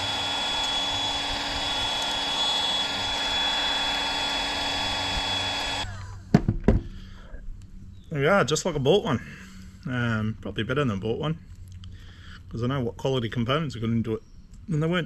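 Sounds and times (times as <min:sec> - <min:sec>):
heat gun fan whine: 0:00.0 - 0:06.8.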